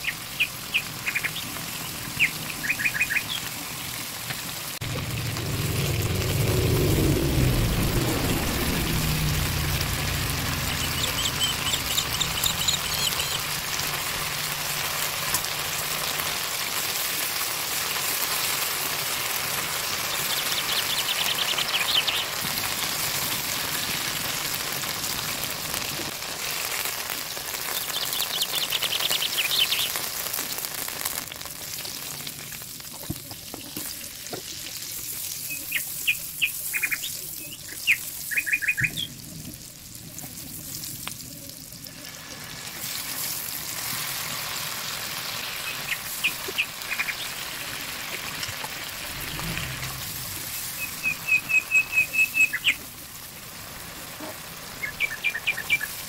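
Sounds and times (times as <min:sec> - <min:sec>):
chicken sizzling in a pan: 0:00.0 - 0:56.0
low hum: 0:04.8 - 0:15.8, 0:48.0 - 0:51.5.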